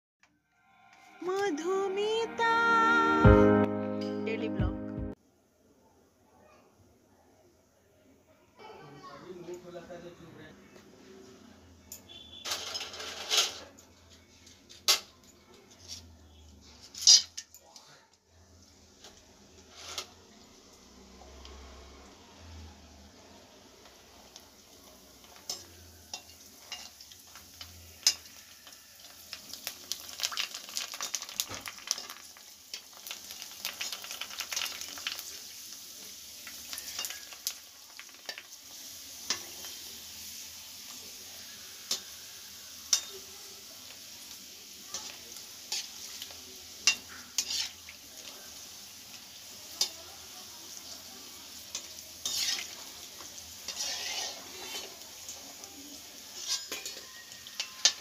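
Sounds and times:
deep-frying in hot oil: 0:09.3 - 0:58.0
metal spoon scraping pan: 0:12.4 - 0:13.8, 0:16.7 - 0:17.4, 0:44.9 - 0:47.9, 0:51.7 - 0:55.4, 0:56.3 - 0:58.0.

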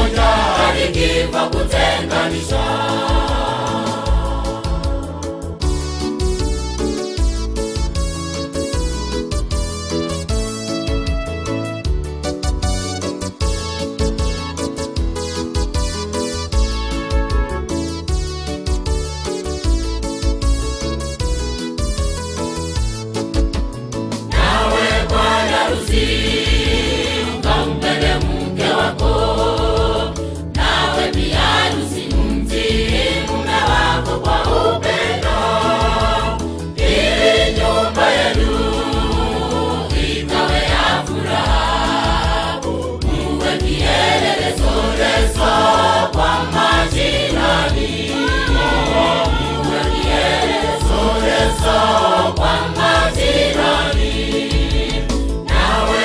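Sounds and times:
choir singing gospel in harmony: 0:00.0 - 0:06.2, 0:24.3 - 0:56.0
low bass beat: 0:30.6 - 0:56.0.

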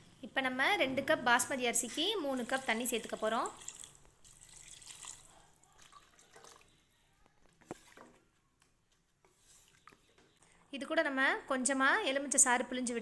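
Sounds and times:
water pouring into a pot: 0:02.2 - 0:06.8.

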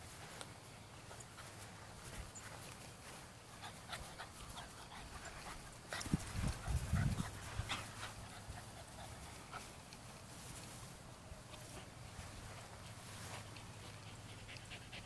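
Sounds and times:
paws rustling through dry grass: 0:00.0 - 0:15.0
small dog panting: 0:01.0 - 0:09.9, 0:11.5 - 0:15.0.

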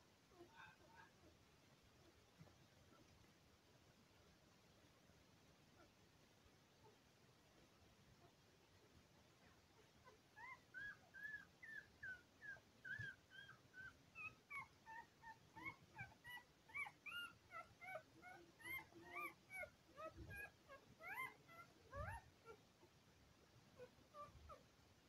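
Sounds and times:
puppies crying in high squeaks: 0:10.4 - 0:22.6.

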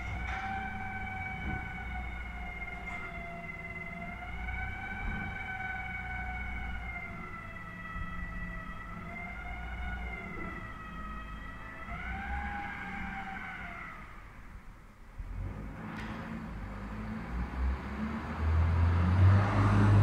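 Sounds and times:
hydraulic compactor whine: 0:00.0 - 0:14.5.

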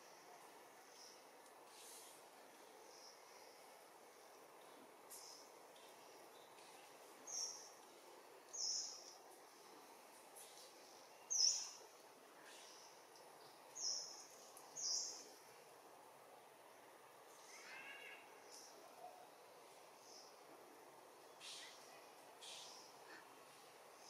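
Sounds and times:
faint outdoor hiss: 0:00.0 - 0:24.0
bird chirping: 0:08.5 - 0:09.2.

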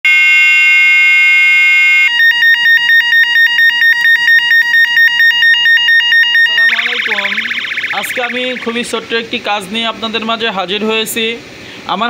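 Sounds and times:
electronic bicycle horn siren: 0:00.1 - 0:09.0.

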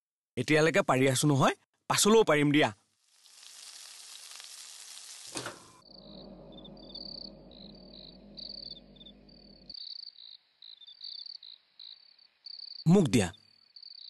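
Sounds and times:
low steady hum: 0:05.8 - 0:09.7
crickets chirping: 0:05.8 - 0:14.0.

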